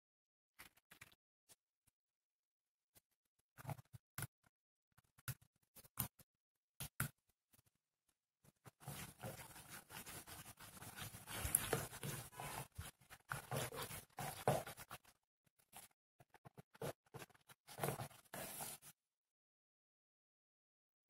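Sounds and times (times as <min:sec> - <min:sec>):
spoon scraping plastic bowl: 0:08.7 - 0:15.1.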